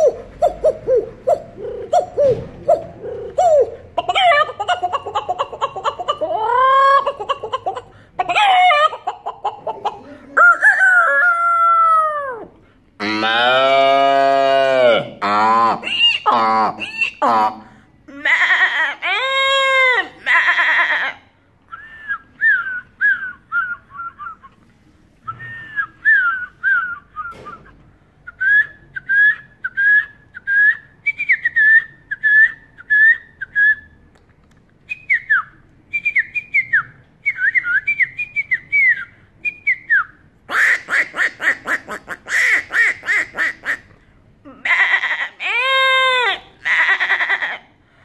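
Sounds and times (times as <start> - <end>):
man whistling bird chirps: 25.3 - 27.4, 34.9 - 40.1.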